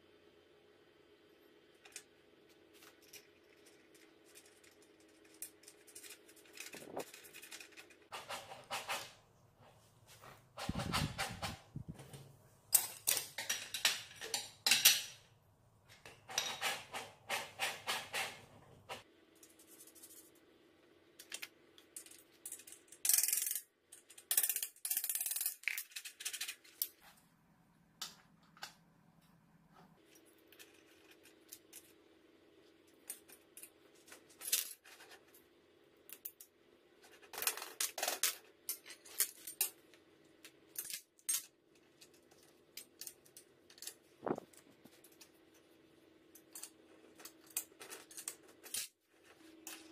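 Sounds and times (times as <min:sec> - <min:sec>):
small metal parts clicking and rattling: 0:02.7 - 0:08.1, 0:21.2 - 0:27.0, 0:30.0 - 0:32.0, 0:33.0 - 0:35.4, 0:36.0 - 0:45.7, 0:46.3 - 0:49.0.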